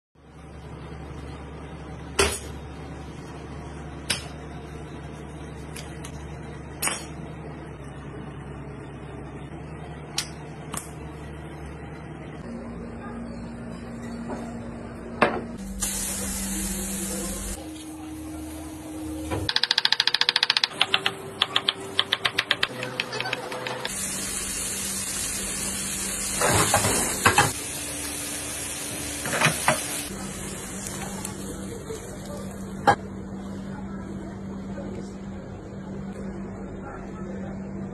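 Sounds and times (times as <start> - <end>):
low kitchen hum: 0.2 - 37.9
vegetables sizzling in a wok: 15.6 - 18.6, 23.9 - 32.8.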